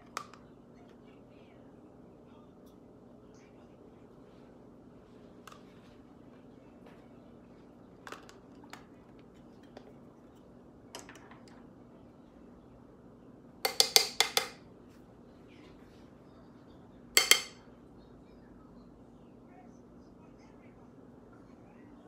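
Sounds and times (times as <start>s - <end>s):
makeup tools clinking: 13.7s - 14.6s, 17.2s - 17.6s.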